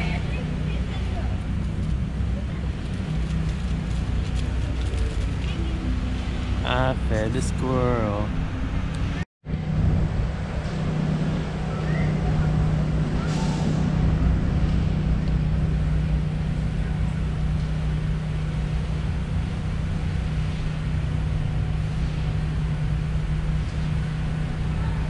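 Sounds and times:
street traffic noise: 0.0 - 25.0.

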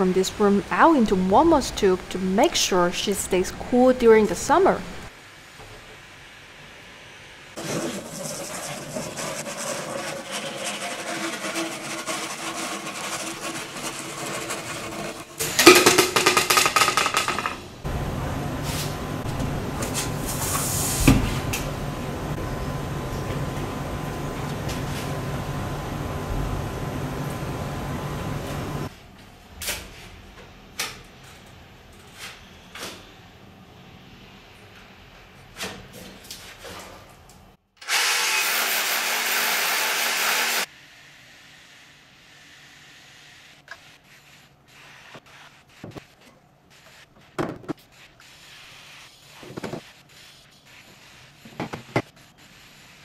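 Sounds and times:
hand saw cutting plastic pipe: 7.6 - 15.3
objects knocking and clunking: 15.4 - 17.7.

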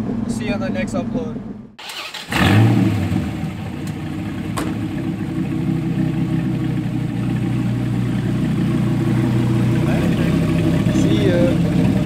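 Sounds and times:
car engine starting and idling: 0.0 - 12.0.

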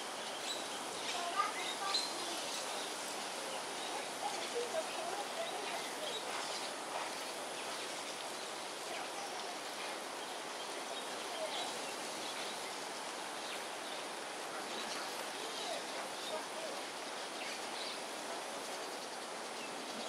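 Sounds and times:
rain hissing: 0.0 - 20.0
rushing floodwater: 0.0 - 20.0.

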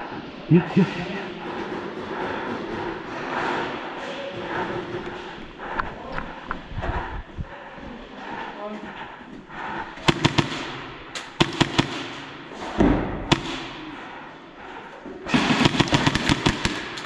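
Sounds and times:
airsoft guns firing: 10.0 - 14.0, 15.3 - 17.0.

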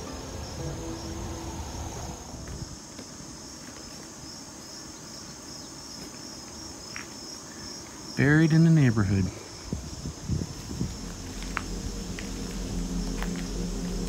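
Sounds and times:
crickets chirping: 0.0 - 14.0
low rumble: 9.7 - 14.0.

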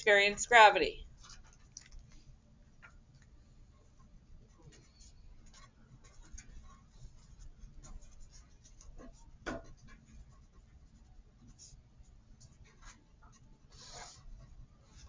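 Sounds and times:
pen scratching on paper: 4.7 - 15.0.

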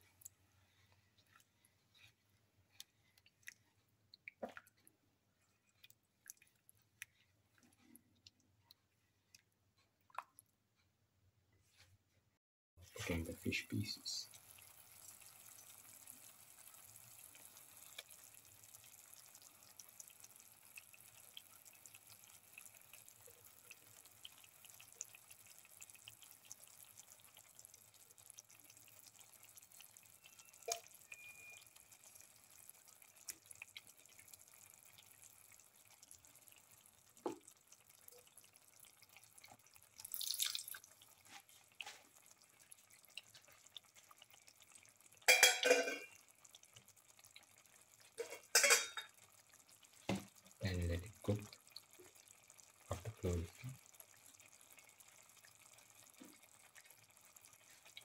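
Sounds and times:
sauce simmering with pops: 0.0 - 11.1, 13.1 - 58.0.

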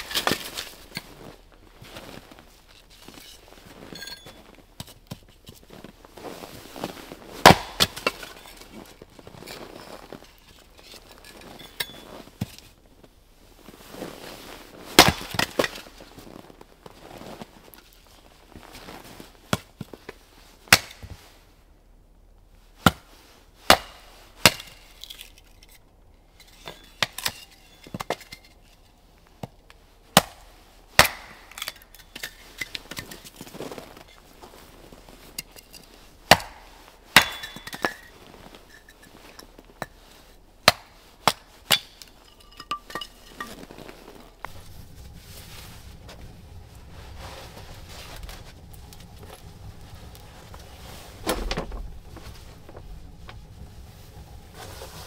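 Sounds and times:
axe chopping firewood: 7.4 - 8.6, 15.0 - 15.8, 20.7 - 21.1, 23.7 - 24.8, 30.2 - 32.3, 36.3 - 38.0, 40.6 - 42.1
low hum: 33.7 - 55.0.

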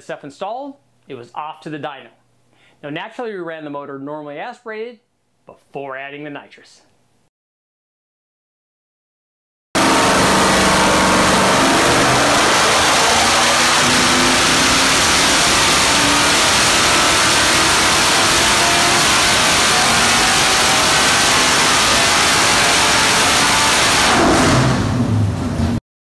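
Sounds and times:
engine revving on a dyno: 9.8 - 25.8.

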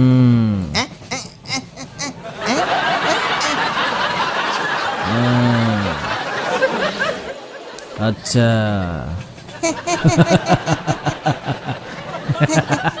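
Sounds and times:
man's long low vocal sound: 0.0 - 0.8, 5.0 - 6.2
audience laughter: 2.2 - 8.0, 9.4 - 13.0.

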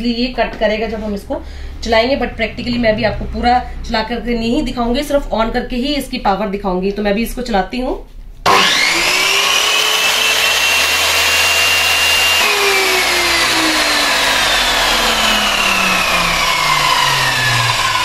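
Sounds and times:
miter saw motor whine: 8.5 - 18.0.

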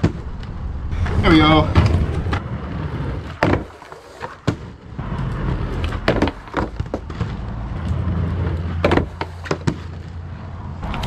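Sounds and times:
skate wheels rolling on asphalt: 0.0 - 11.0
skates grinding pipe rail: 0.0 - 11.0
skates knocking on pipe: 3.3 - 10.1.

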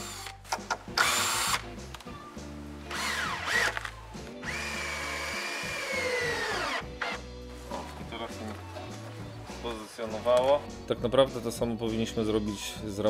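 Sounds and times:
drill motor whining: 1.0 - 1.6, 2.9 - 7.2.

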